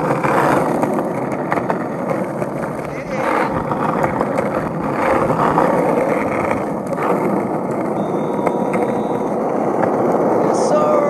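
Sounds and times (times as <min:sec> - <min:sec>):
skateboard wheels rolling on asphalt: 0:00.0 - 0:11.0
wheels clicking over cracks: 0:00.0 - 0:11.0.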